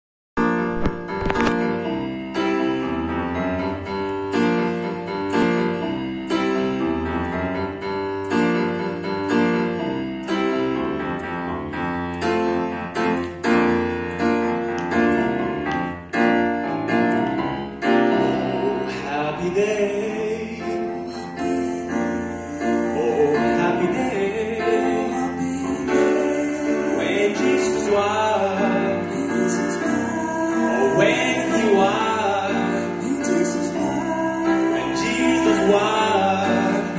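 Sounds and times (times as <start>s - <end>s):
grand piano playing: 0.4s - 36.9s
person singing with vibrato: 18.1s - 36.9s.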